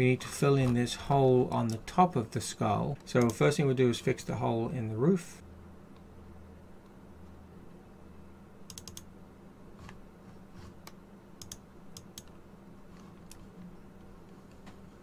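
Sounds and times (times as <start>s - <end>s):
low steady hum: 0.0s - 15.0s
mouse and keyboard clicks: 8.7s - 9.1s.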